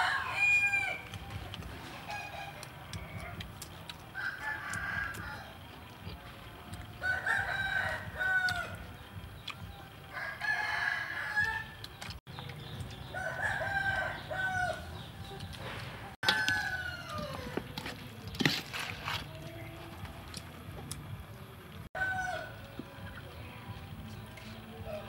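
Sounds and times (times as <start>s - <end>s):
rooster crowing: 0.0s - 1.2s, 4.1s - 5.7s, 7.0s - 8.9s, 10.1s - 11.8s, 13.1s - 15.0s, 16.2s - 17.8s, 22.0s - 22.6s.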